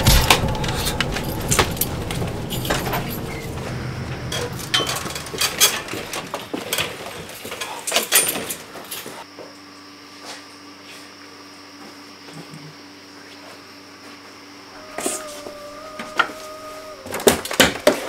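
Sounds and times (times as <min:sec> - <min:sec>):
low rumble: 0:00.0 - 0:06.4
knocks clicks and rattles: 0:00.0 - 0:06.8.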